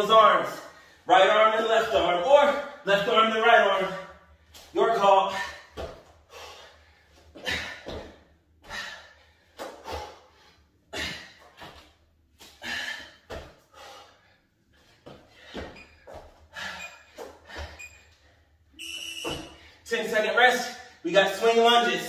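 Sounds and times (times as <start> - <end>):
feet thudding on rubber mat: 5.3 - 6.2, 7.2 - 8.9, 13.2 - 13.6, 14.8 - 17.8, 19.2 - 19.6.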